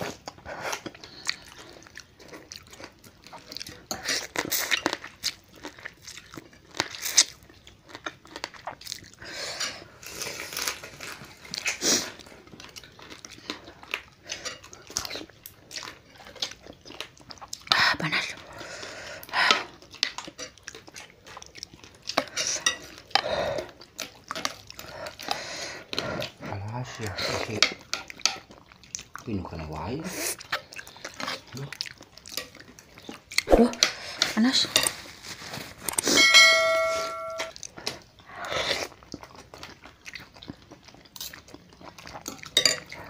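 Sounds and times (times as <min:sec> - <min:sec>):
chewing and crunching: 0:00.0 - 0:36.2, 0:37.5 - 0:43.0
cutlery clinking on ceramic bowls: 0:22.2 - 0:23.0, 0:36.0 - 0:37.6, 0:42.3 - 0:43.0.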